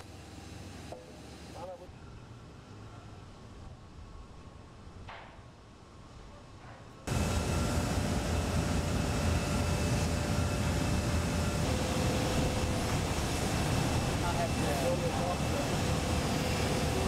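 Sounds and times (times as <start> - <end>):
construction machinery rumble: 7.0 - 17.0
faint machine whines: 7.1 - 17.0.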